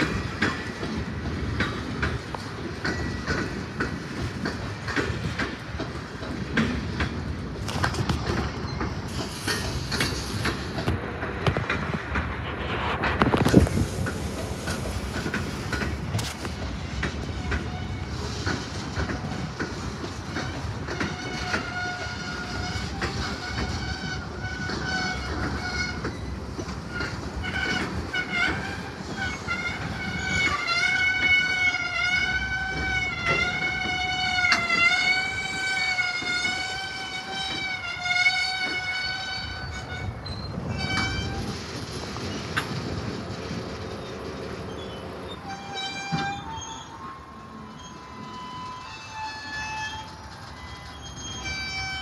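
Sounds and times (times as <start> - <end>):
train wheels clacking over rails: 0.0 - 52.0
metallic wheel squeal: 20.4 - 42.6, 43.4 - 52.0.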